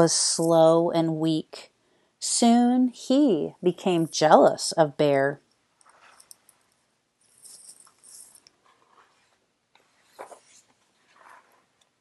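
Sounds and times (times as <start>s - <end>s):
soft handling noises: 5.8s - 12.0s
paper page turning: 10.0s - 11.6s.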